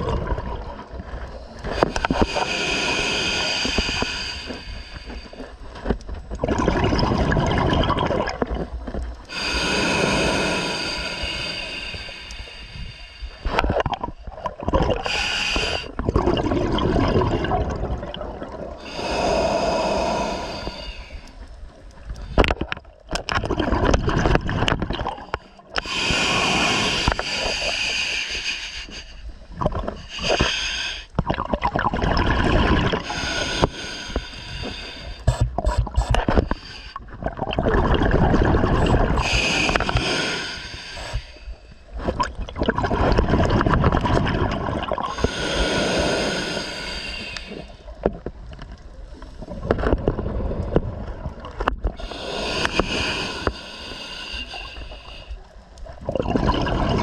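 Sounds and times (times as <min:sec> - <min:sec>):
exhaled bubbles gurgling: 0:00.0 - 0:05.4, 0:06.2 - 0:12.1, 0:13.4 - 0:21.2, 0:22.2 - 0:28.2, 0:29.5 - 0:57.0
regulator hissing inhale: 0:01.3 - 0:05.8, 0:09.3 - 0:13.6, 0:15.0 - 0:16.0, 0:18.8 - 0:22.4, 0:25.4 - 0:31.2, 0:33.0 - 0:37.1, 0:38.8 - 0:42.0, 0:45.1 - 0:48.0, 0:51.9 - 0:55.8.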